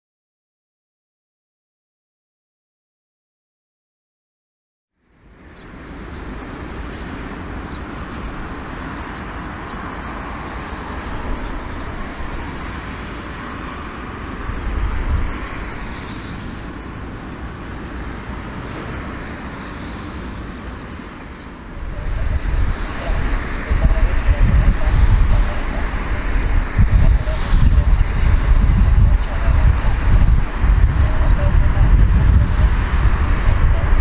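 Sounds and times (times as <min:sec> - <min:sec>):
jet engines roaring: 0:05.0 - 0:34.0.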